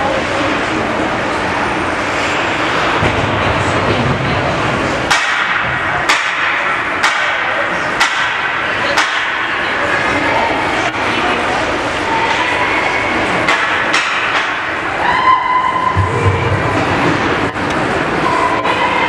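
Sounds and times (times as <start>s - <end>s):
arena crowd voices: 0.0s - 19.0s
sharp bangs: 2.7s - 9.6s.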